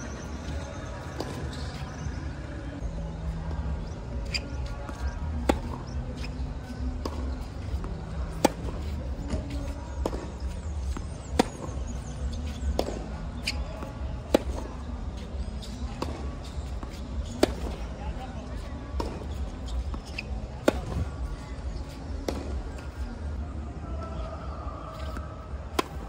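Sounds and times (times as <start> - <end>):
racket hitting tennis ball: 7.0 - 11.8, 12.5 - 17.8, 22.2 - 22.6, 25.7 - 26.0
distant ball hits and bounces: 12.7 - 14.7.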